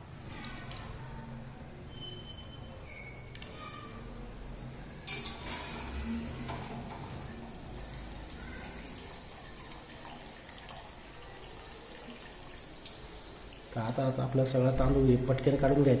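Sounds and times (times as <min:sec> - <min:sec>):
water dripping off a skimmer: 0:06.5 - 0:14.9.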